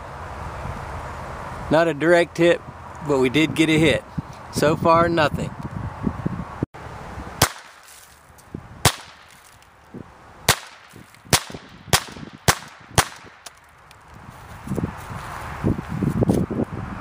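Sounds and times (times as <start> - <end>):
rifle shots cracking: 7.4 - 8.0, 8.8 - 9.5, 10.5 - 13.6.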